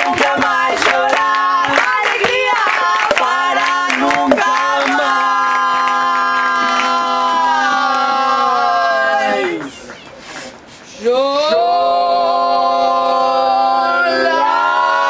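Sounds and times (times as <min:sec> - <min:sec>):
women singing in harmony: 0:00.0 - 0:06.8
rhythmic hand claps: 0:00.0 - 0:08.1.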